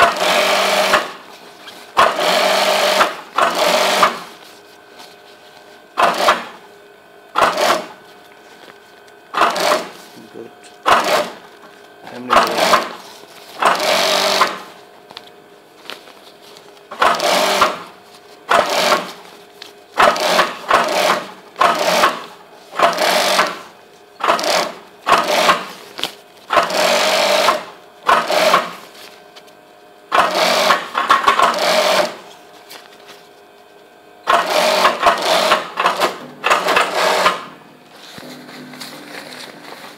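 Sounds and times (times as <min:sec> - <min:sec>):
sewing machine stitching: 0:00.0 - 0:01.2, 0:02.0 - 0:04.3, 0:06.0 - 0:06.6, 0:07.4 - 0:07.9, 0:09.4 - 0:09.9, 0:10.8 - 0:11.4, 0:12.1 - 0:13.0, 0:13.6 - 0:14.7, 0:16.9 - 0:17.8, 0:18.5 - 0:19.2, 0:20.0 - 0:25.8, 0:26.5 - 0:28.8, 0:30.1 - 0:32.2, 0:34.2 - 0:37.5.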